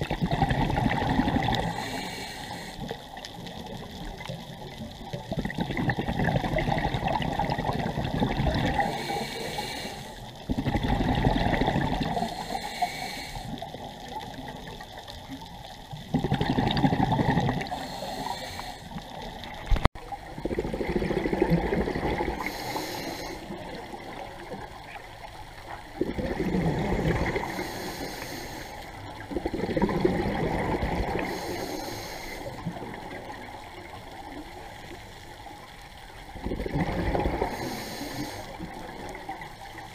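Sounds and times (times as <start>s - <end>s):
exhaled air bubbling: 0.0s - 39.9s
regulator inhale hiss: 1.6s - 3.6s, 8.8s - 10.4s, 12.2s - 14.0s, 17.6s - 19.3s, 22.3s - 23.8s, 27.3s - 29.2s, 31.1s - 32.7s, 37.4s - 38.8s.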